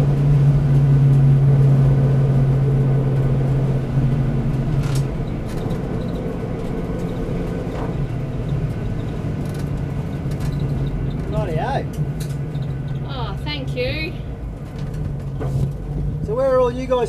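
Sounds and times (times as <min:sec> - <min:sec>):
car engine heard from inside: 0:00.0 - 0:17.0.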